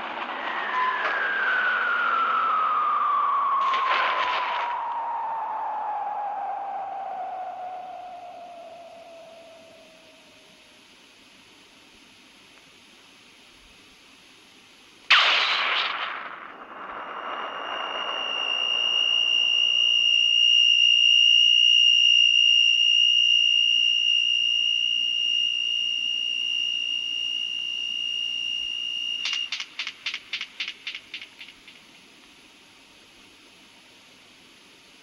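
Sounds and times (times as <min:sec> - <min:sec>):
rapid pulsing tone: 0:00.0 - 0:10.4
high steady tone: 0:04.7 - 0:10.4, 0:16.6 - 0:29.5.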